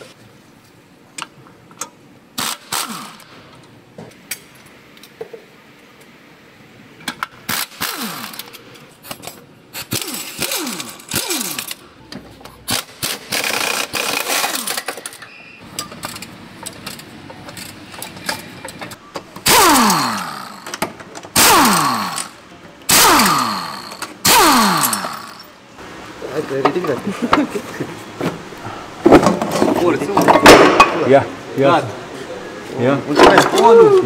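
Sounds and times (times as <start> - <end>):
power ratchet whirring: 2.4 - 3.3, 7.5 - 8.6, 9.7 - 11.8, 12.7 - 15.2, 19.4 - 25.5.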